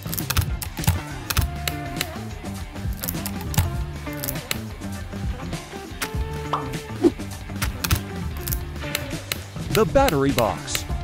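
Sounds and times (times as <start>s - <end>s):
plastic parts clicking together: 0.0s - 2.2s, 2.9s - 4.6s, 7.6s - 10.5s
background music: 0.0s - 11.0s.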